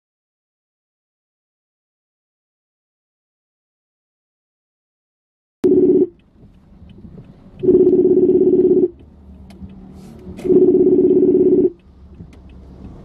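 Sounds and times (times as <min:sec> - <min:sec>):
phone ringback tone: 0:05.6 - 0:06.1, 0:07.6 - 0:08.9, 0:10.4 - 0:11.8.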